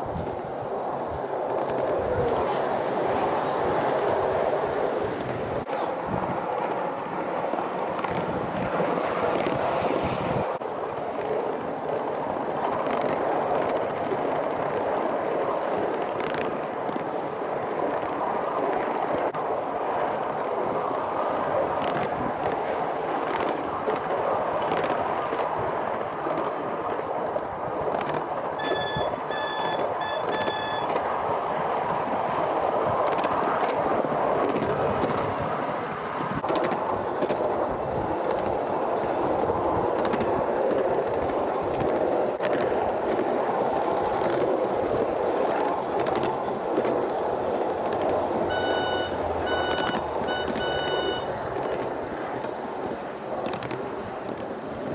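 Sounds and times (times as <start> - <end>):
miniature train rumbling on track: 0.0 - 54.9
short high-pitched tones: 28.6 - 30.9, 48.5 - 51.3.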